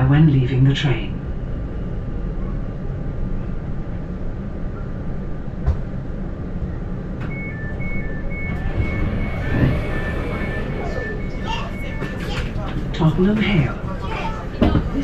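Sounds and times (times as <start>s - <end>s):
train equipment hum: 0.0s - 15.0s
two-note door warning beeping: 7.3s - 12.6s.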